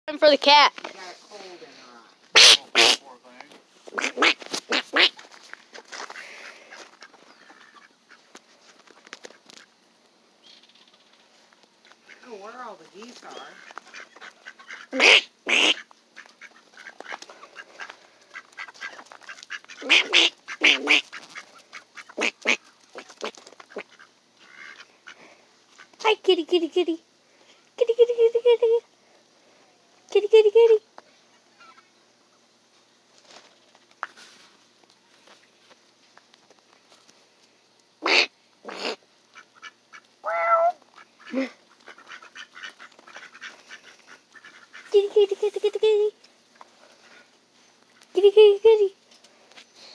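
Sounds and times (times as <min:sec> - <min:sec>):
ducks quacking: 0:02.4 - 0:03.2, 0:03.9 - 0:09.7, 0:11.9 - 0:26.0, 0:38.0 - 0:45.9
footsteps on gravel: 0:04.4 - 0:07.3.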